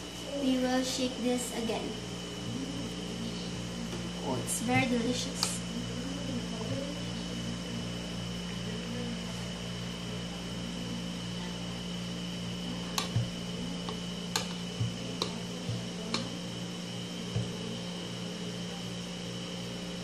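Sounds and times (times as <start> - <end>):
steady hum: 0.0 - 20.0
wire whisk clicking against bowl: 13.0 - 15.4, 16.1 - 16.3.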